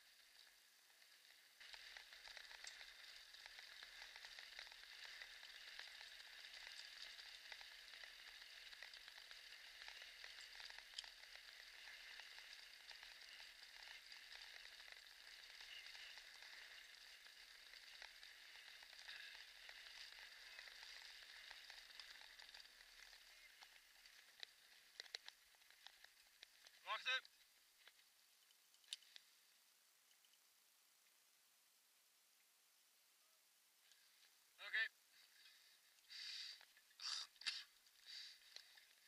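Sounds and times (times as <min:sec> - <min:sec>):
scooter wheels rolling on road: 0:00.0 - 0:26.8.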